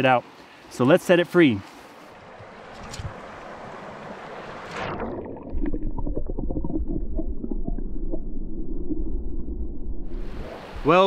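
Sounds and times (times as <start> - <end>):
river water rushing: 1.6 - 5.2
muffled underwater current rumble: 4.7 - 10.9.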